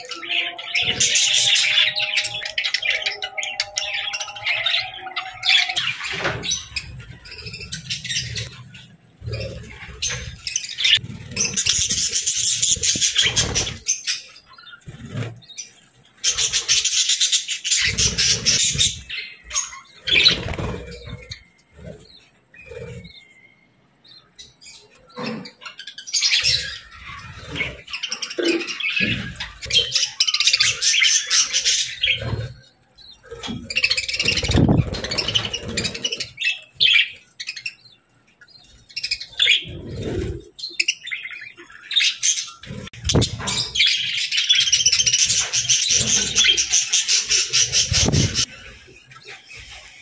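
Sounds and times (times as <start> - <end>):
budgerigars chattering: 25.1 - 48.5.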